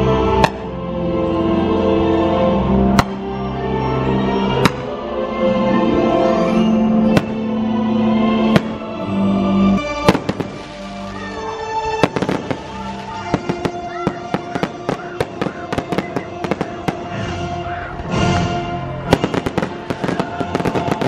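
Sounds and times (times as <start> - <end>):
music playing: 0.0 - 21.0
fireworks bangs and crackle: 7.1 - 7.4, 9.8 - 21.0.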